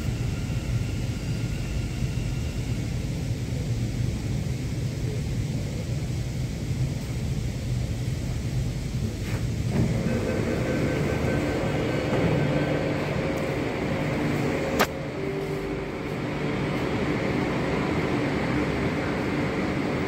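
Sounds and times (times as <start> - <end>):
train hum and rumble: 0.0 - 20.0
faint steady tones: 9.7 - 20.0
sharp click: 14.8 - 15.0.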